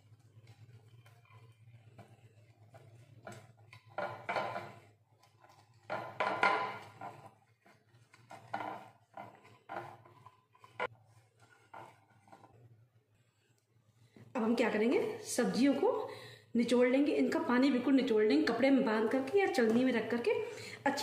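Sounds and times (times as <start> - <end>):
brush rubbing a pan: 0.0 - 14.0.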